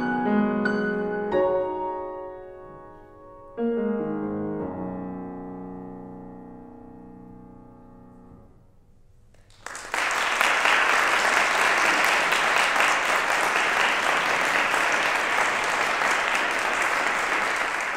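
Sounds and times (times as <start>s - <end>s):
piano chord: 0.0s - 8.8s
audience applause: 9.4s - 17.9s.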